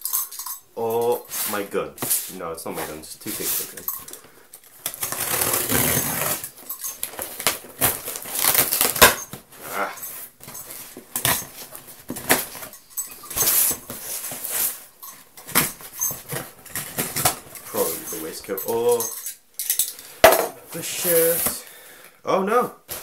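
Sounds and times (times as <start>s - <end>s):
packing tape ripping: 4.8s - 9.4s
knife slitting cardboard box: 4.9s - 6.5s
cardboard scraping and rustling: 4.9s - 12.7s.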